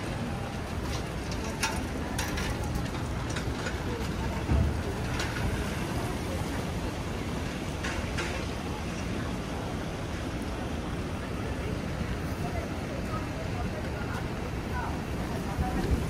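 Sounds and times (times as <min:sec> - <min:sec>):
raindrops striking an umbrella: 0:00.0 - 0:06.2
city traffic rumble: 0:00.0 - 0:16.0
heavy rain falling: 0:00.0 - 0:16.0.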